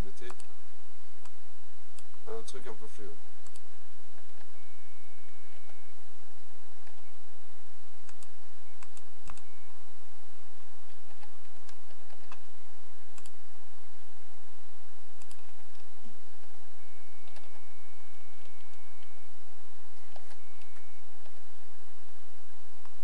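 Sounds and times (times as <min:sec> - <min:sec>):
low electrical hum and hiss: 0:00.0 - 0:23.0
keyboard keys clicking: 0:10.9 - 0:12.4, 0:15.2 - 0:16.5, 0:17.2 - 0:17.6, 0:20.0 - 0:21.4.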